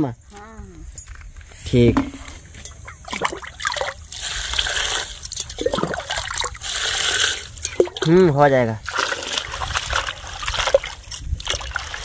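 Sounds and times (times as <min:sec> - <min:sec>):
water splashing into tub: 0:02.8 - 0:08.2, 0:08.8 - 0:12.0.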